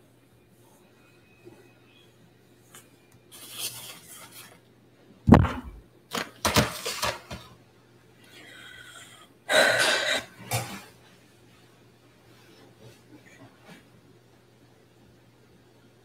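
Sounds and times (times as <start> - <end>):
person coughing: 9.5 - 10.4.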